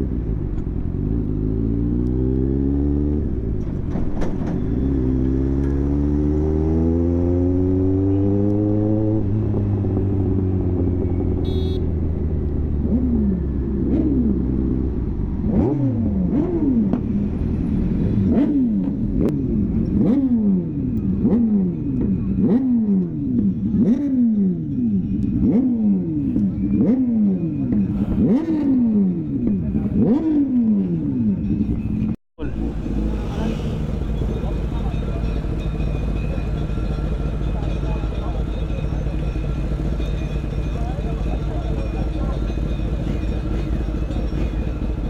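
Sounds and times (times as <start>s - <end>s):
motorcycle engine revving: 0.0s - 35.6s.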